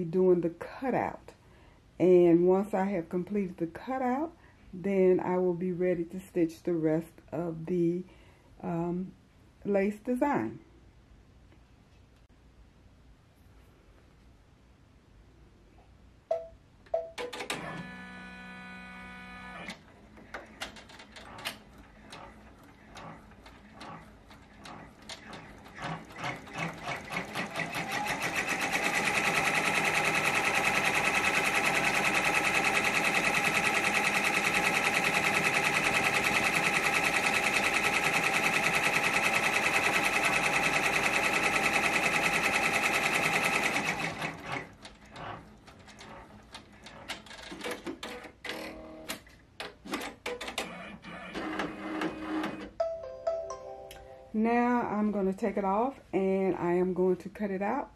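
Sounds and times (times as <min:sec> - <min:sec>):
embroidery machine stitching: 0:17.3 - 0:49.1, 0:49.8 - 0:52.7.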